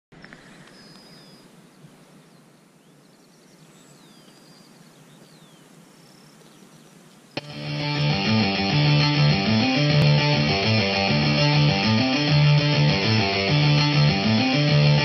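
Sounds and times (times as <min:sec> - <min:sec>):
birds calling: 0:00.2 - 0:10.0
steady low hiss: 0:00.2 - 0:15.0.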